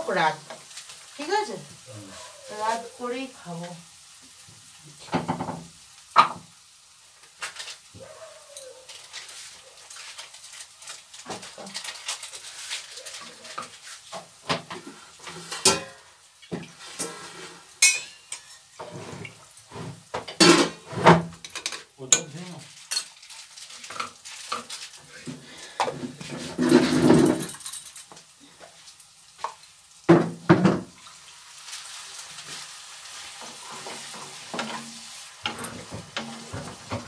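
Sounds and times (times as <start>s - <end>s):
light sizzle: 0.0s - 37.0s
wooden spatula scraping pan: 8.8s - 15.8s, 16.5s - 21.8s, 22.7s - 27.5s, 32.2s - 37.0s.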